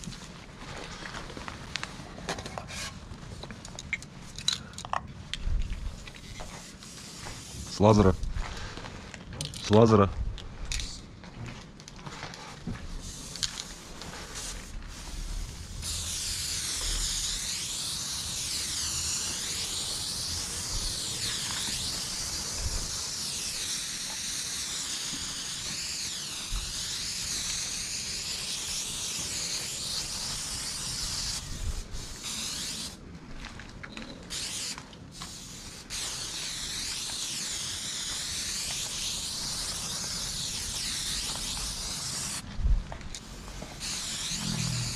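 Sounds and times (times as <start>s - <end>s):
spray paint can hissing: 5.6s - 8.3s, 10.6s - 11.1s, 12.9s - 33.0s, 34.3s - 42.4s, 43.1s - 44.9s.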